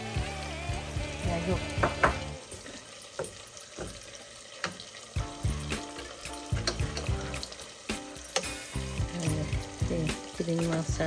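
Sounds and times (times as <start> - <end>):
soft background music: 0.0 - 3.2, 4.8 - 11.0
sauce bubbling: 0.0 - 11.0
spatula knocking and scraping pan: 1.7 - 2.3.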